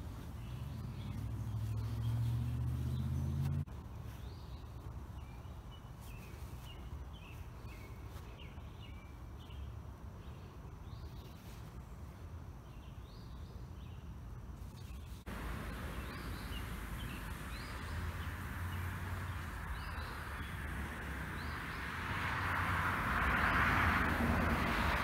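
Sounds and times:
small birds chirping: 0:00.0 - 0:22.7
steady low hum: 0:14.2 - 0:25.0.

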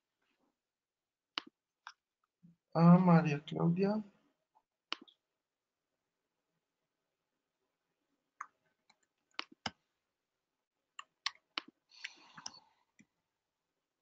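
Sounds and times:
mouse and keyboard clicks: 0:08.4 - 0:09.8.

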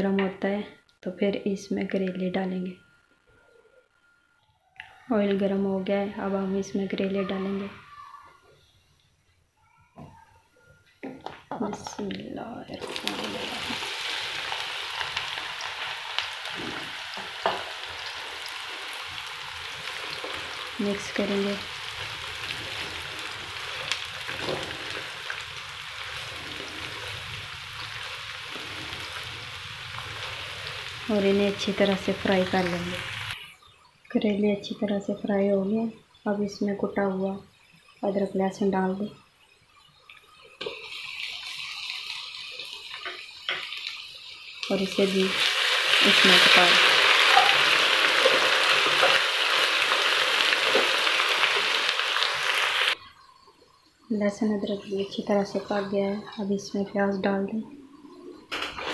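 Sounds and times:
vegetables sizzling in oil: 0:11.6 - 0:58.9.

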